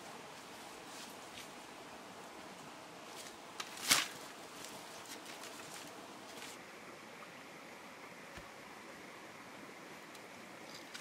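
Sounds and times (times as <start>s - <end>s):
twigs crackling and rustling: 0.0s - 1.8s, 3.0s - 6.6s
firewood bundle clattering down: 3.6s - 4.3s.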